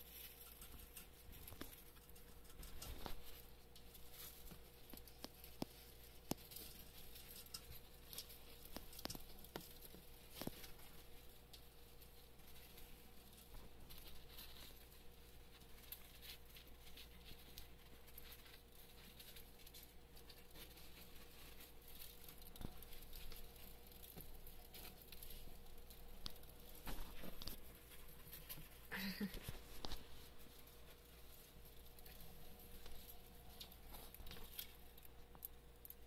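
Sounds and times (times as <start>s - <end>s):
hamsters cracking seeds: 0.0s - 36.0s
hamsters scurrying through bedding: 0.0s - 36.0s.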